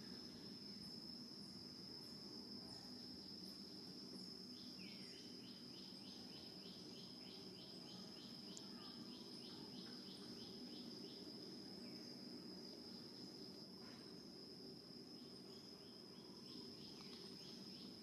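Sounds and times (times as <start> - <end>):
high-pitched insect trill: 0.0 - 18.0
insect chirps: 0.0 - 18.0.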